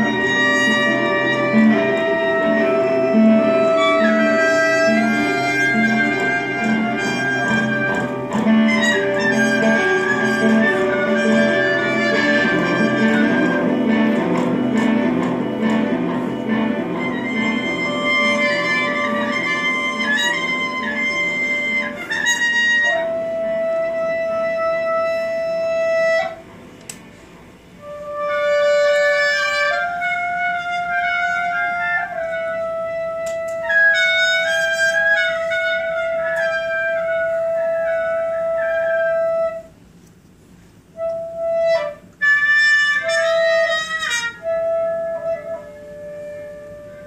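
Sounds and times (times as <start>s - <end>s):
electric guitar held notes: 0.0s - 21.8s
clarinet: 0.0s - 27.0s, 27.7s - 40.1s, 40.8s - 47.0s
trumpet: 0.0s - 27.0s, 27.8s - 40.1s, 40.9s - 47.0s.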